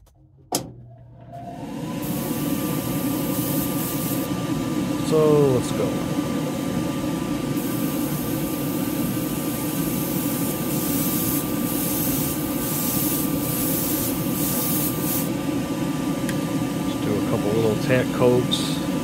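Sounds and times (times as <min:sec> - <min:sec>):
exhaust fan rushing: 0:00.1 - 0:19.0
airbrush spraying hiss: 0:02.0 - 0:04.3, 0:07.5 - 0:15.4.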